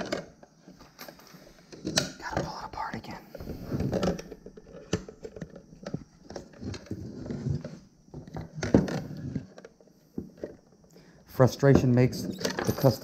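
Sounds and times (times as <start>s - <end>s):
plastic housing clicking and knocking: 3.8s - 10.6s.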